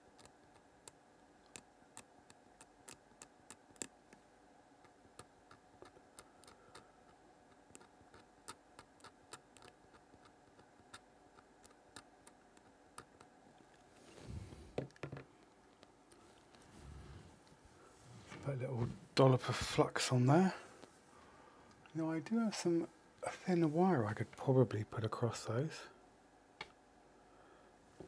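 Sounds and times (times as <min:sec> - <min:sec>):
rustling noise: 0:16.2 - 0:19.8.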